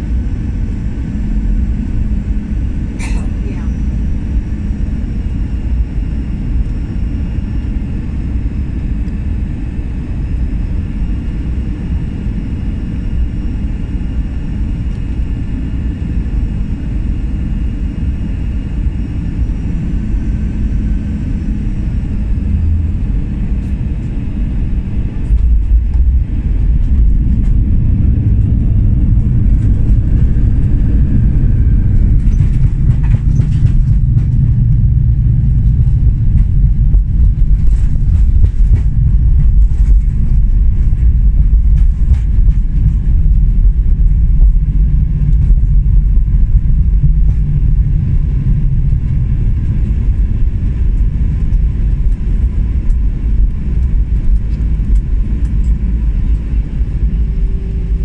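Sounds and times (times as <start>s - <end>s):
jet engine and airflow noise: 0.0s - 58.0s
reverse thrust rumble: 19.4s - 58.0s
wheels rolling on runway: 25.3s - 50.4s.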